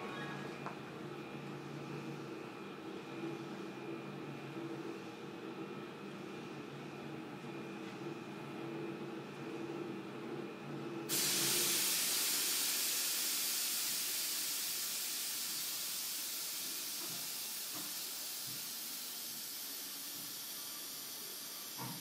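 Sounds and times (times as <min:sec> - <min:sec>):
compressed air hissing: 0:11.1 - 0:22.0.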